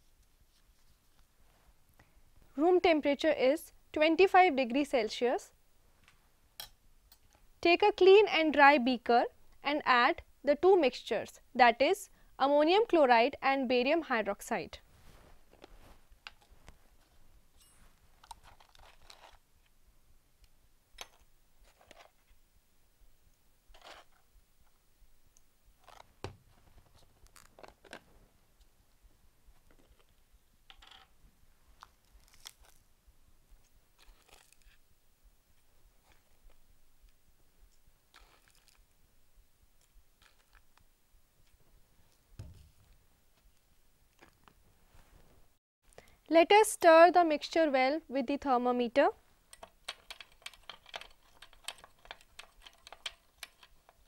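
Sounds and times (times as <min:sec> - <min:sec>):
bottle thumping on bench: 0:42.4 - 0:42.8.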